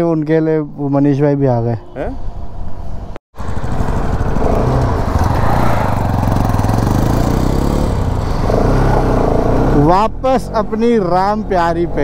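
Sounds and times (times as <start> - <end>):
motorcycle engine running: 3.4 - 9.8.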